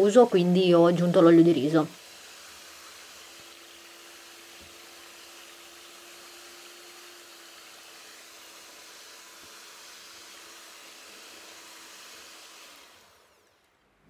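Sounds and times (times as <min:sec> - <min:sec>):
hand mixer whirring: 0:00.0 - 0:13.8.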